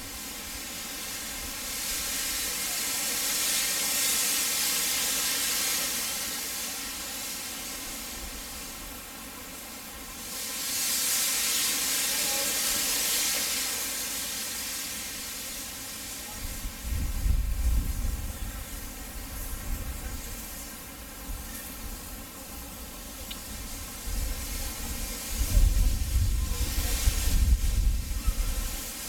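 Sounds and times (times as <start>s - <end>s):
steam locomotive hissing steam: 0.0s - 29.0s.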